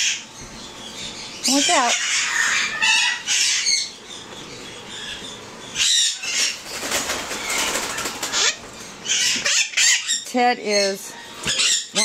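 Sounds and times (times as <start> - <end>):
parrot wings flapping: 6.3 - 8.6.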